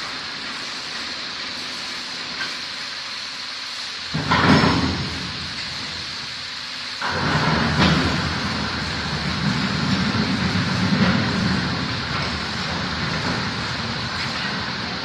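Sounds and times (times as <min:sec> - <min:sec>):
machine hum: 0:07.0 - 0:15.0.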